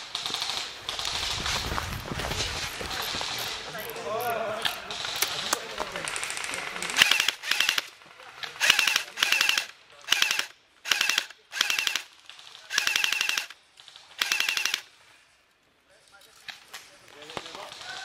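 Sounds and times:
airsoft gun firing bursts: 6.0 - 8.0, 8.6 - 12.1, 12.7 - 14.9.

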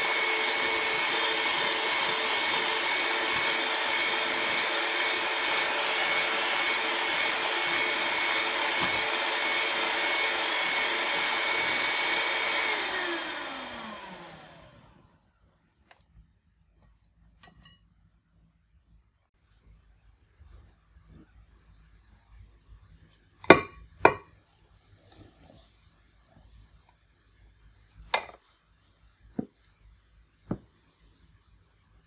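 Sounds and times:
electric hand mixer whining: 0.0 - 15.2.

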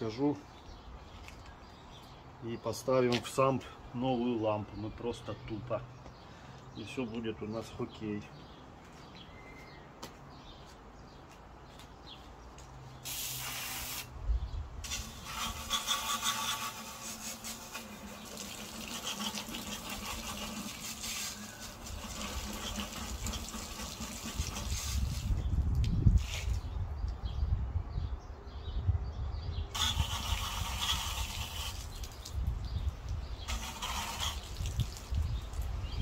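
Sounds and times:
short hiss: 13.0 - 14.2.

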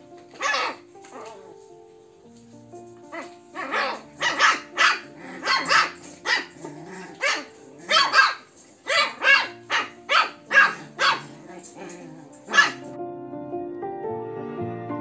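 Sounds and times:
background music: 0.0 - 15.0
puppies yapping: 0.3 - 1.7, 3.0 - 13.0.

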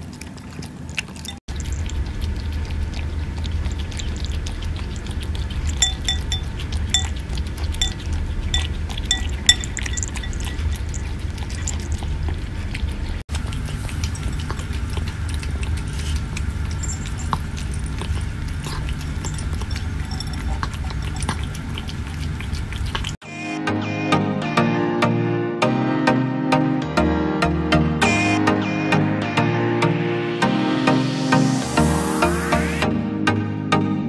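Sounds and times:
cat crunching dry food: 0.0 - 23.2
cat licking wet food: 0.0 - 23.2
clinks against ceramic bowl: 5.8 - 7.2, 7.8 - 10.9.

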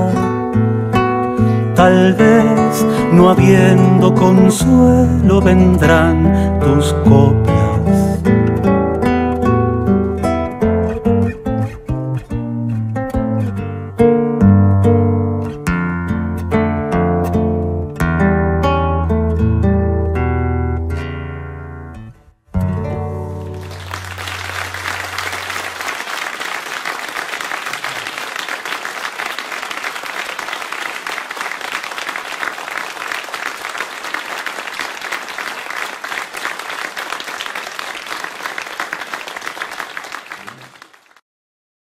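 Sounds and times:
audience applauding: 23.2 - 41.2.

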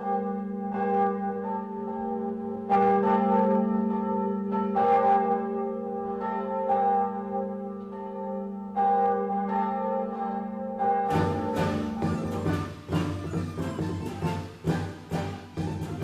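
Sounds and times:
large deep bell ringing: 10.9 - 16.0.

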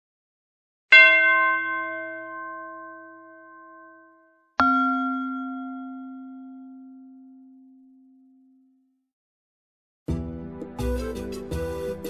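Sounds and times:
bell-like chime strikes: 1.0 - 7.5.

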